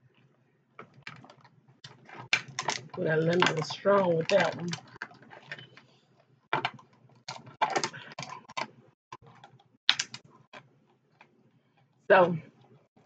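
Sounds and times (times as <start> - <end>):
crab shells cracking by hand: 9.4 - 10.2.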